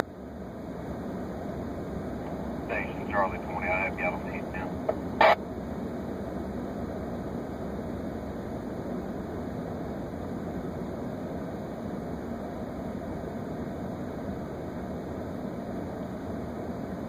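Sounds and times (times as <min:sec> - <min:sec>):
vehicle engine rumbling: 0:00.2 - 0:06.3.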